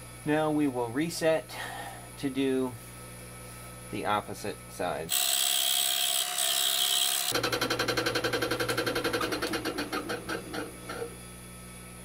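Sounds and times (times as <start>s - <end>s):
lathe rapid ticking: 6.6s - 10.7s.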